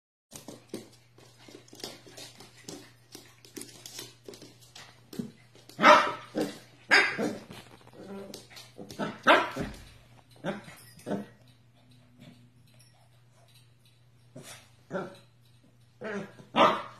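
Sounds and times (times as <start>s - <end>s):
paws and ball tapping on floor: 0.3s - 16.9s
puppy barking: 5.8s - 7.5s, 9.0s - 9.7s, 16.0s - 16.9s.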